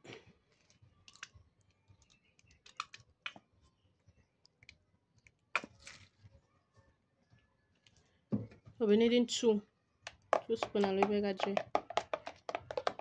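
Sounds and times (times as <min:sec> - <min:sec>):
gel squeezed from plastic bottle: 0:01.1 - 0:01.4, 0:02.0 - 0:03.4, 0:05.5 - 0:06.2.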